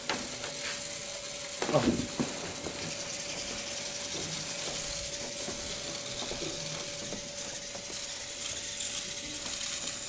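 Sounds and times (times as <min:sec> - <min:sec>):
small robot motors whirring: 0:00.0 - 0:10.0.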